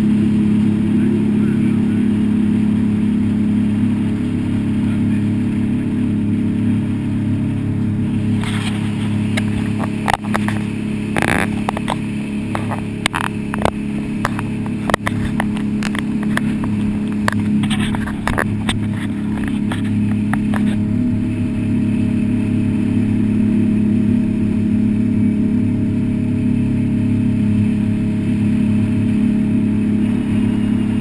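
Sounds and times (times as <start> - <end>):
boat engine droning: 0.0 - 31.0
hull knocking on choppy water: 9.2 - 20.8.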